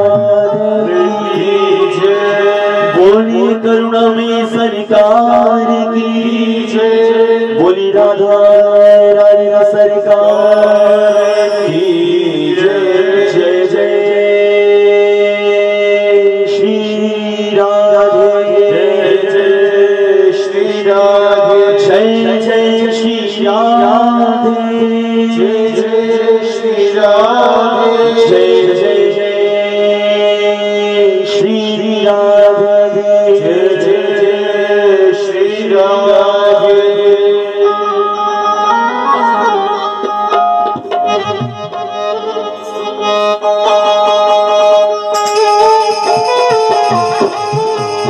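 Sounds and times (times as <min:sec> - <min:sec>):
electronic keyboard sustained notes: 0:00.0 - 0:04.5, 0:09.2 - 0:13.2, 0:37.1 - 0:48.0
man chanting: 0:00.0 - 0:38.2
man singing into microphone: 0:00.0 - 0:39.9
hand drum strokes: 0:40.1 - 0:43.1.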